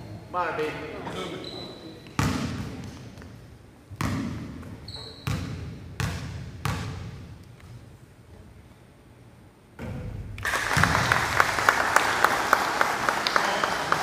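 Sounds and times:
basketball bouncing on gym floor: 2.2s - 7.4s, 9.8s - 11.2s.

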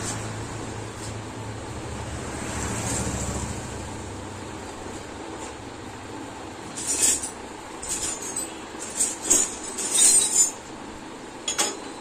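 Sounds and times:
metal tools clinking and scraping: 6.6s - 10.8s, 11.4s - 12.0s.

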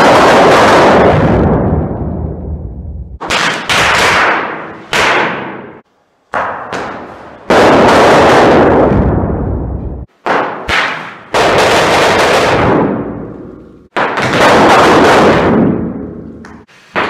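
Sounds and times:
firecracker bangs: 0.0s - 1.9s, 3.2s - 9.4s, 10.0s - 16.2s.

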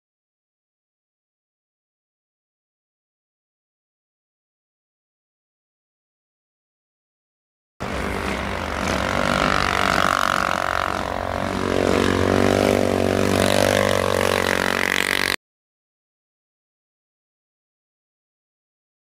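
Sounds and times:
atv engines revving: 7.8s - 15.4s.

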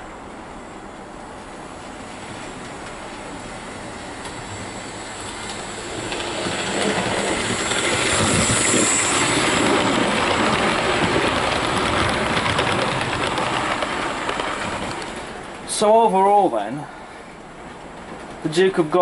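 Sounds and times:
model train wheels clattering on rails: 5.2s - 15.6s.

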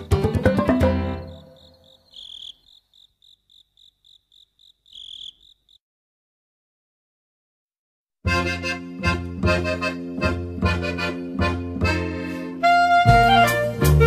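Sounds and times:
cricket chirping: 1.2s - 5.8s.

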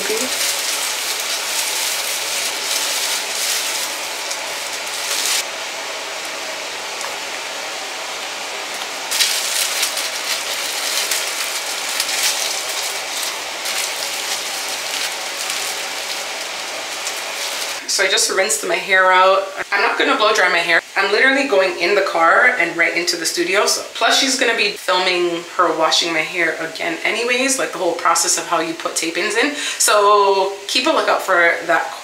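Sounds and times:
steady rushing hiss: 0.0s - 20.8s.

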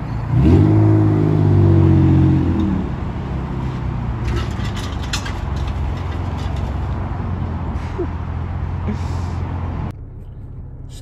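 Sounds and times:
car engine idling and revving: 0.0s - 11.0s.

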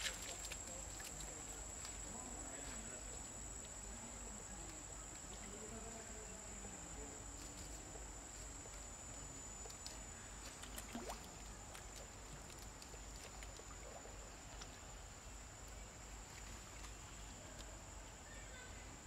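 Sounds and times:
small water splashes and drips: 0.0s - 3.8s, 9.6s - 17.8s
steady high-pitched hum: 0.0s - 19.0s.

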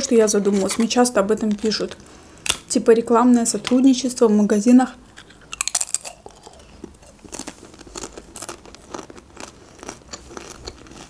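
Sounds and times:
crunching chips: 5.1s - 11.0s.

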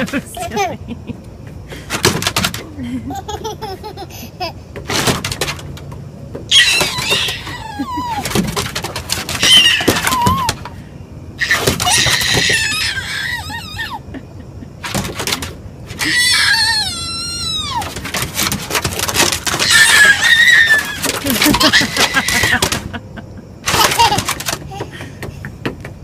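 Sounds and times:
toddler shrieking with laughter: 6.5s - 8.4s, 9.4s - 10.6s, 11.4s - 14.0s, 16.0s - 18.0s, 19.5s - 22.8s.

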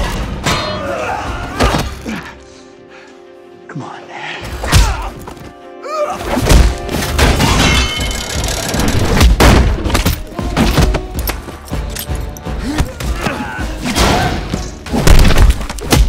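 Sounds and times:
music: 0.0s - 16.0s.

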